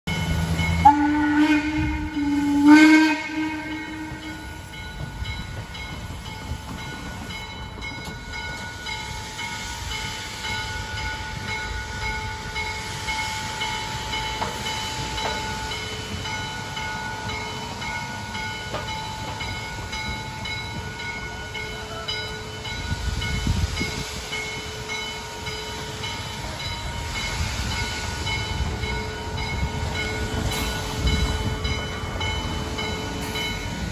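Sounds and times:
crossing signal bell ringing: 0:00.1 - 0:33.9
steam locomotive whistle: 0:00.7 - 0:04.8.

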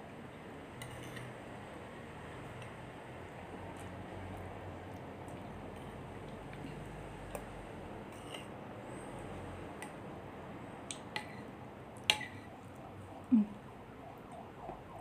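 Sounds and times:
spoon clinking and scraping glass bowl: 0:08.1 - 0:08.5.

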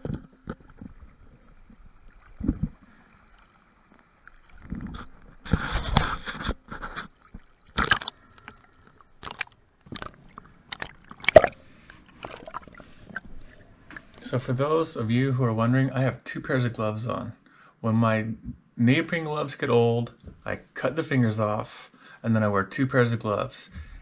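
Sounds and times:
water splashing and gurgling: 0:00.0 - 0:14.4.

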